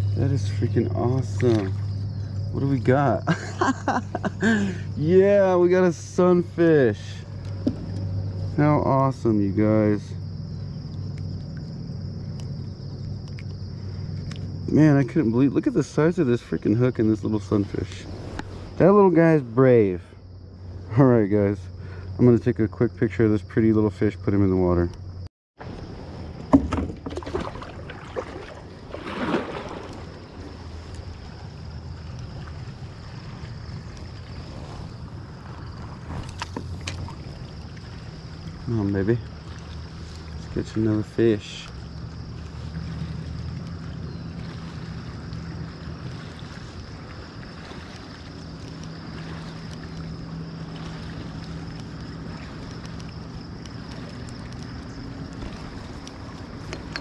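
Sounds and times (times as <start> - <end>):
steady low rumble: 0.0 - 22.3
low engine hum: 0.0 - 57.0
light clicks and taps: 51.8 - 57.0.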